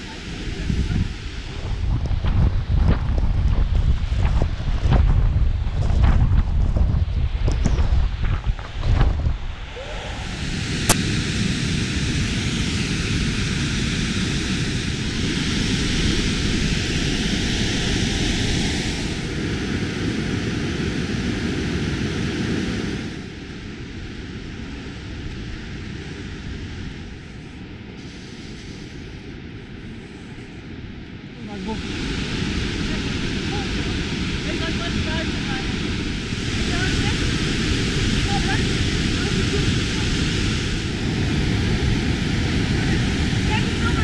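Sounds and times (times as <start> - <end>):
waterfall rushing: 9.6 - 19.8, 31.8 - 44.0.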